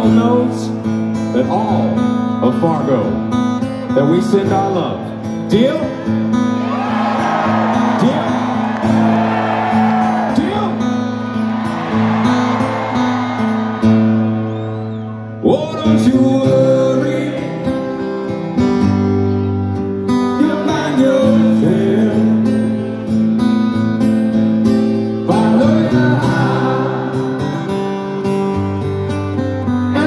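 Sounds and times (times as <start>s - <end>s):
amplified acoustic guitar strumming: 0.0s - 30.0s
man singing: 15.4s - 18.0s, 20.1s - 23.0s, 25.2s - 27.7s.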